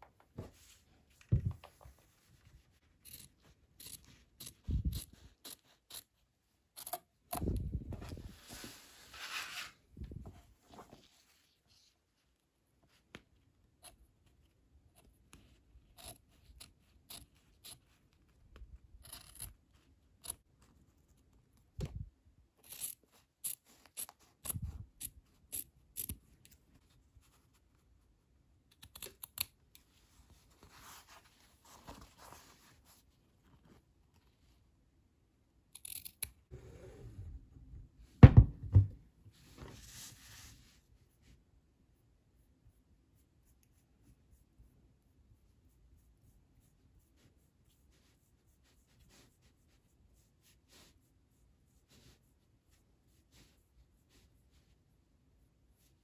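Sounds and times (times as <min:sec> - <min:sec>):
scissors snipping through fabric: 0:35.8 - 0:36.4
handling thumps: 0:38.2 - 0:39.0.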